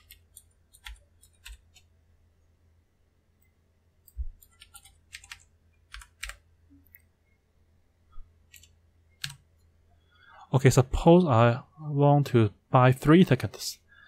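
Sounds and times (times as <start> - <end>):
keyboard keystrokes: 4.4 - 6.4.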